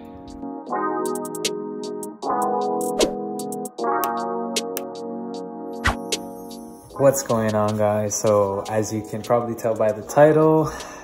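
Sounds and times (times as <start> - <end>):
synthesizer chords: 0.0 - 9.2.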